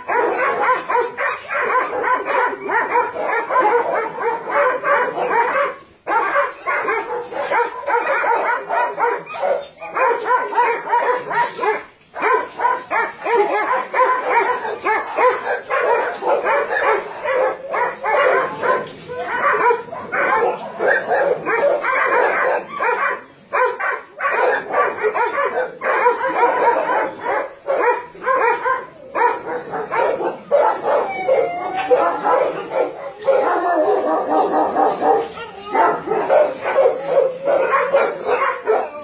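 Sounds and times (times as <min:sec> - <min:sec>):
many dogs barking and yipping: 0:00.0 - 0:39.0.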